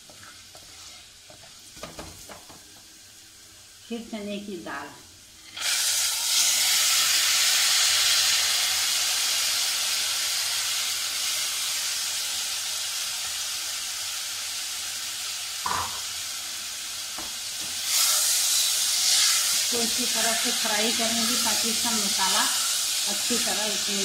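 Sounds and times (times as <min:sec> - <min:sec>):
lentils sizzling in hot oil: 0:00.0 - 0:24.0
short knock: 0:15.7 - 0:16.0.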